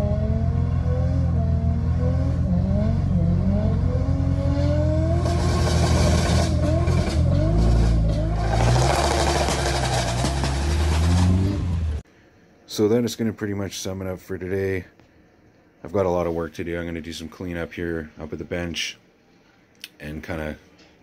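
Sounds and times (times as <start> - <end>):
engine revving on launch limiter: 0.0 - 12.0
spinning tyres rushing: 0.0 - 12.0
exhaust pops crackling: 5.2 - 11.9.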